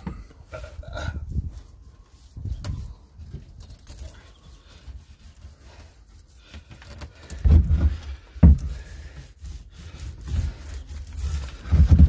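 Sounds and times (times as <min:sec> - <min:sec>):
wood knocking and rubbing: 0:06.4 - 0:12.0
heavy dull thumps: 0:07.4 - 0:09.0.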